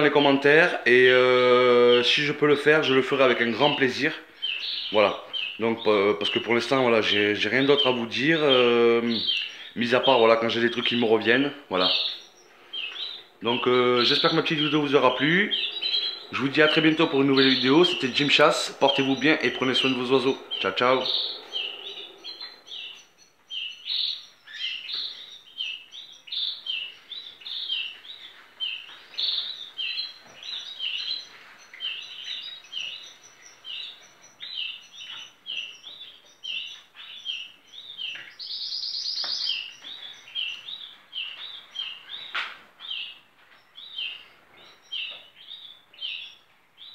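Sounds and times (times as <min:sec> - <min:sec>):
canaries chirping: 0:00.0 - 0:46.9
rapid bird trill: 0:00.0 - 0:46.9.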